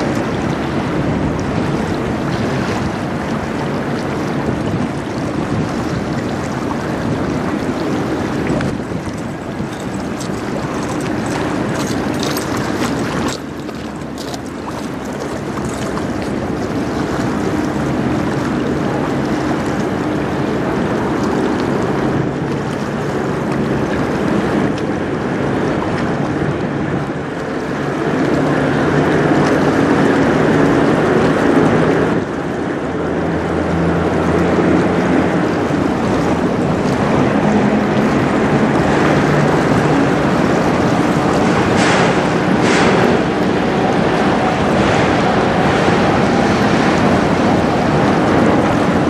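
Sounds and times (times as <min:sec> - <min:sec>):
ship diesel engine drone: 0:00.0 - 0:49.0
water washing along hull: 0:00.0 - 0:49.0
wind on microphone: 0:00.0 - 0:49.0.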